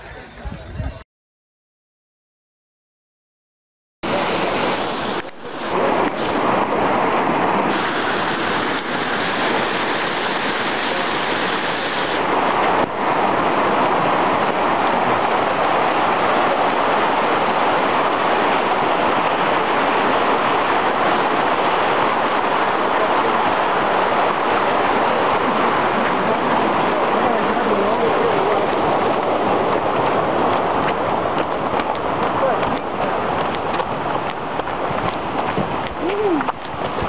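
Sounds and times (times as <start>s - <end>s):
mountain creek rushing: 4.0s - 37.0s
high hiss: 4.1s - 6.4s, 7.6s - 12.2s.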